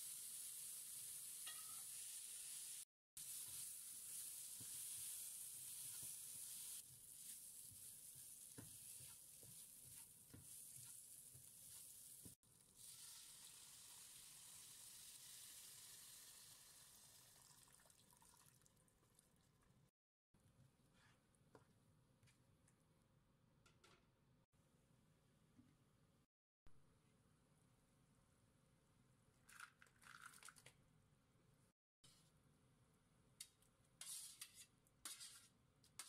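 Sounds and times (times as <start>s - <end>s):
food sizzling in oil: 0.0s - 17.8s.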